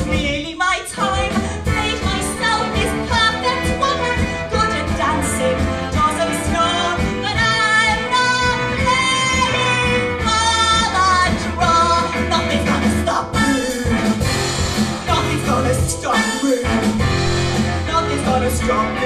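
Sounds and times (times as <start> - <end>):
woman singing with vibrato: 0.0 - 14.2
band accompaniment: 0.0 - 19.0.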